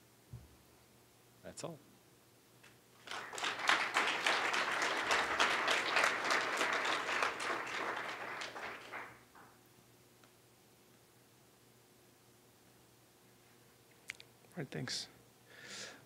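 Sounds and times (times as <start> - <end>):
audience applauding: 3.0 - 9.3.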